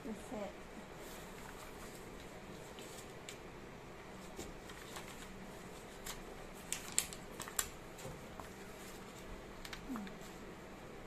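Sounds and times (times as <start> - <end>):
paper rustling: 1.0 - 3.4, 4.1 - 10.4
tape crackling: 1.1 - 3.5, 4.1 - 10.5.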